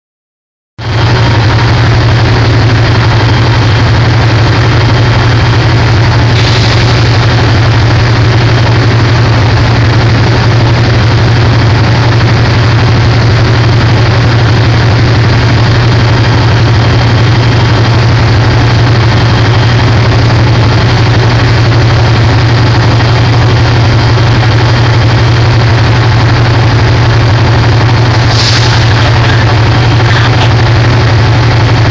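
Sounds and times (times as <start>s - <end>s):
diesel locomotive idling hum: 0.8s - 31.9s
short air hisses: 6.4s - 7.0s, 28.2s - 29.0s.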